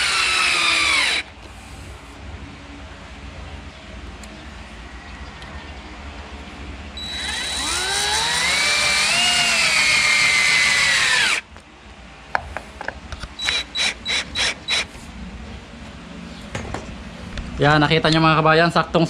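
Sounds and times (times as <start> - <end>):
power drill driving screw: 0.0 - 1.3, 7.0 - 11.4, 13.4 - 14.9.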